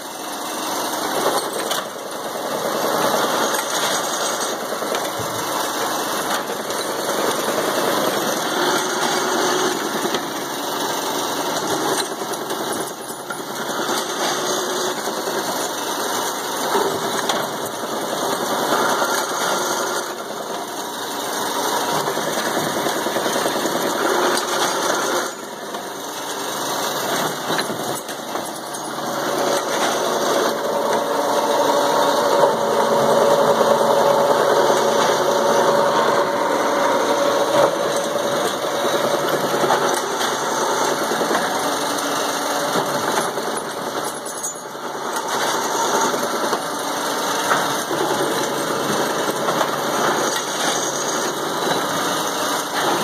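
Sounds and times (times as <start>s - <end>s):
steady machine hum: 0.0s - 53.0s.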